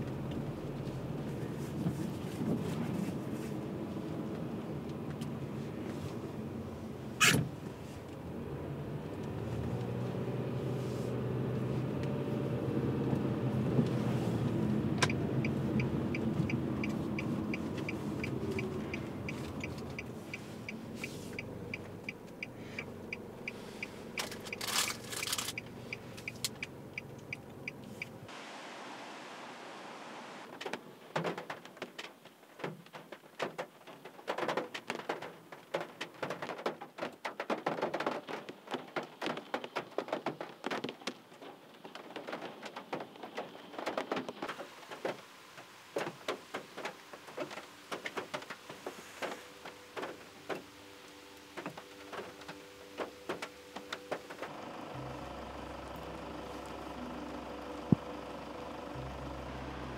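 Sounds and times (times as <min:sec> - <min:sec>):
turn signal ticking: 0:00.0 - 0:02.2, 0:08.1 - 0:28.3, 0:46.0 - 0:59.9
car engine and road rumble: 0:00.0 - 0:59.9.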